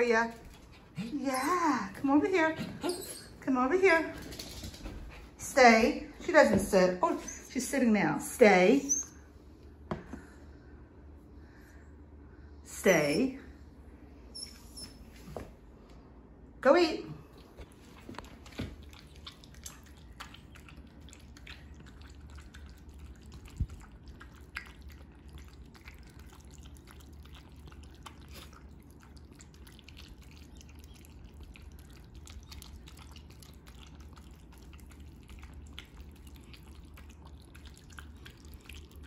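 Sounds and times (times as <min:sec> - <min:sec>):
dog eating wet food: 0:00.0 - 0:02.5, 0:17.2 - 0:39.0.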